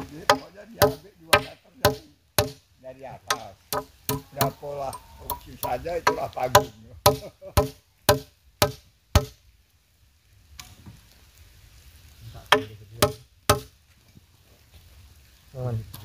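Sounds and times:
hand tool striking timber: 0.0 - 2.6, 3.3 - 9.4, 12.5 - 13.7.

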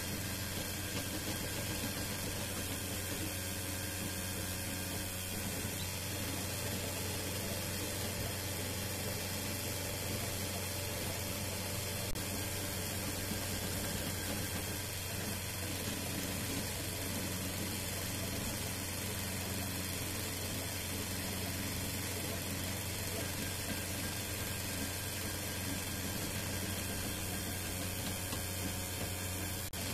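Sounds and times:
stepper motor tones: 0.0 - 29.9
three d printer fan whir and hum: 0.0 - 29.9.

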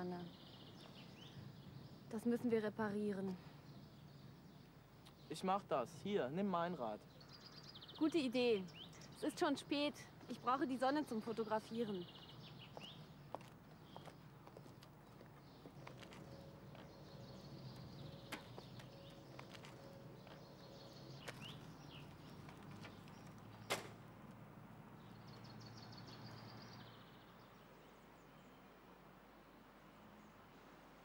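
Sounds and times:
bird chirps: 7.0 - 9.4, 10.2 - 23.9.

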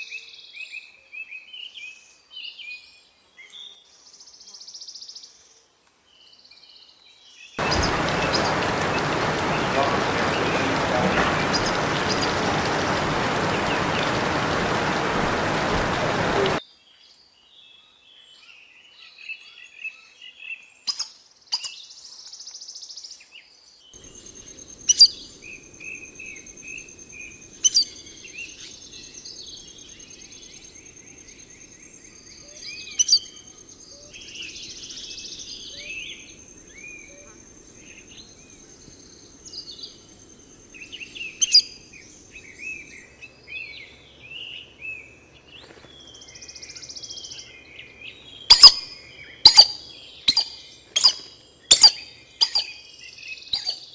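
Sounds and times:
birds chirping: 7.6 - 16.6, 24.0 - 33.0, 33.6 - 53.9
heavy rain on foliage: 7.6 - 16.6, 24.0 - 29.9.

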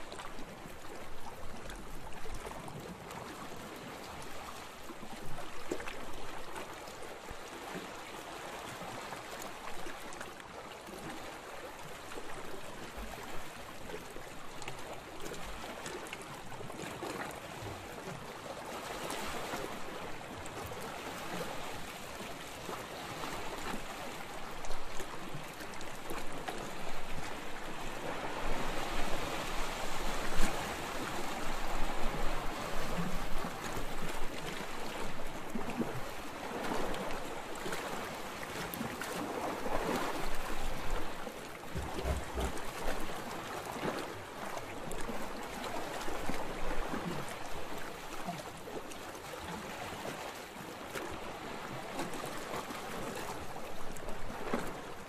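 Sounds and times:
ocean waves washing: 25.2 - 47.5.

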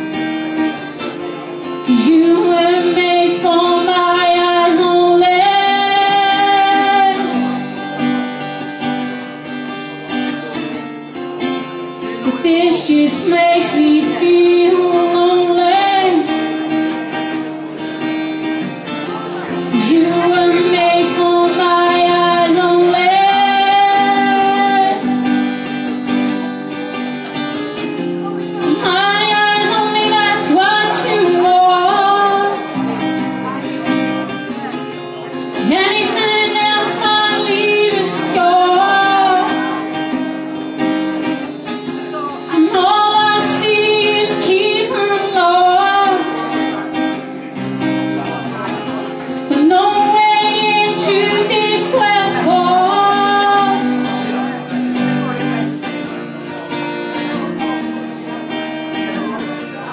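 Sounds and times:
strummed acoustic guitar: 0.0 - 59.9
woman singing: 1.8 - 7.7, 12.2 - 16.6, 19.7 - 25.2, 28.6 - 33.0, 35.6 - 40.0, 42.4 - 46.8, 49.4 - 54.5.

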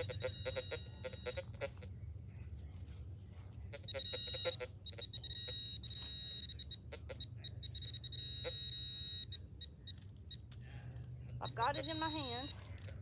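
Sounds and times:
pinpointer electronic beeping tone: 0.0 - 1.8, 3.8 - 10.5, 11.4 - 12.6.

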